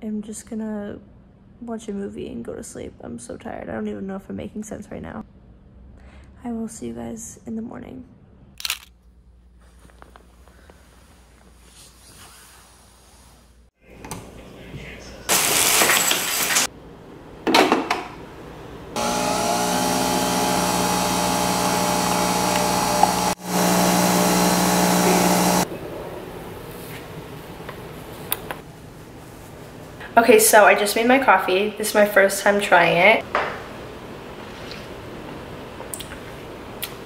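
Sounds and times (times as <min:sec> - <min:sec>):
coffee machine humming and whining: 0:18.9 - 0:25.7.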